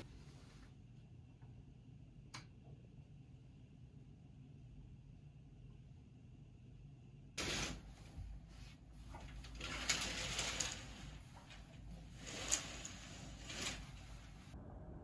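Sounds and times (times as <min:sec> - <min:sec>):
curtain fabric swishing: 0:07.4 - 0:14.6.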